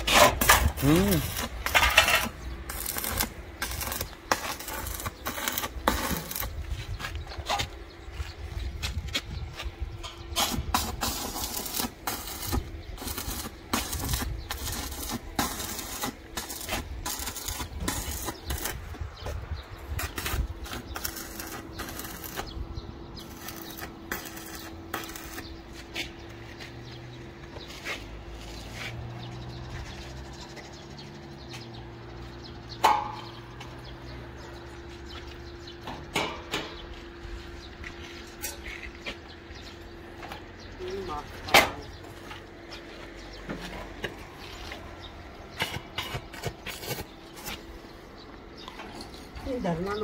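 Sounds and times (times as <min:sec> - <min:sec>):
arc welding crackle: 0:00.0 - 0:07.0, 0:10.3 - 0:26.2, 0:44.4 - 0:47.8.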